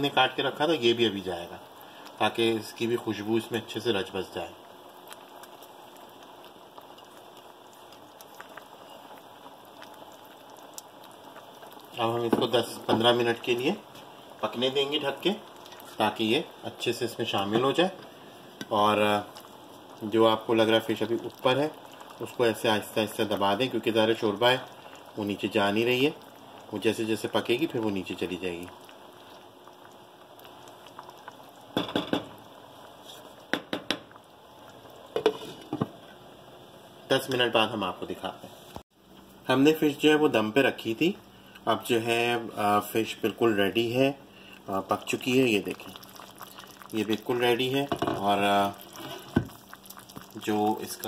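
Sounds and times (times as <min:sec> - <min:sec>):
curry simmering with bubbling: 0:00.0 - 0:51.0
wooden spoon knocking on pan: 0:31.8 - 0:32.4, 0:33.5 - 0:34.1, 0:35.1 - 0:36.0, 0:47.9 - 0:48.3.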